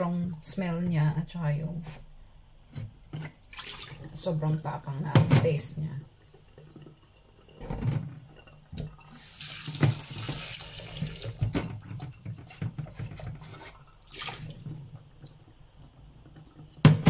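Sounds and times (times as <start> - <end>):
tap running into a bowl: 7.6 - 13.5.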